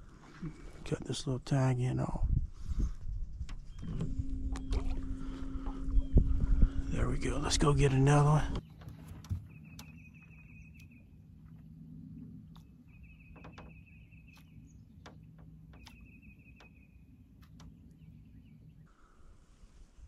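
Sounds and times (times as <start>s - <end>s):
steady low hum: 0.0s - 19.4s
bird trilling song: 2.5s - 6.9s, 8.6s - 11.2s, 12.2s - 18.9s.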